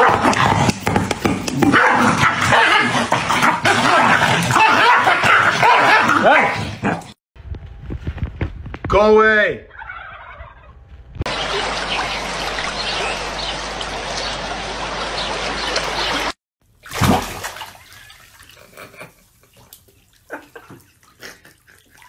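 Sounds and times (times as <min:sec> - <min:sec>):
water running: 0:11.3 - 0:22.0.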